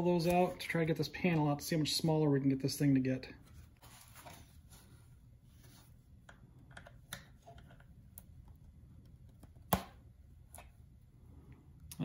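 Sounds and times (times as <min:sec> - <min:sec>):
plastic snap: 0:09.3 - 0:10.7.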